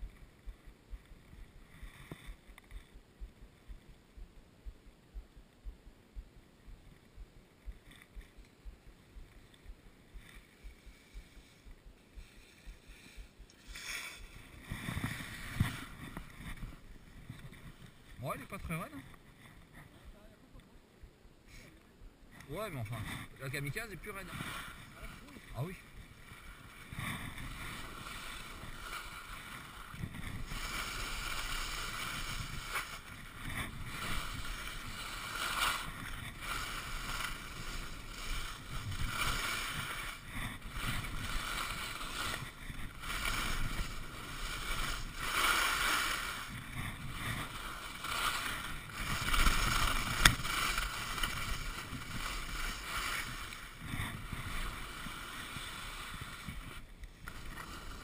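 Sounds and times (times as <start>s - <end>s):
skis scraping over snow: 9.5s - 20.0s, 22.4s - 58.0s.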